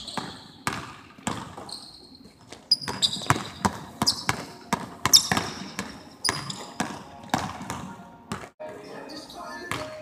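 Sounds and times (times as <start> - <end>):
basketball bouncing on gym floor: 0.0 - 1.8, 2.4 - 8.6
sneakers squeaking: 0.0 - 10.0.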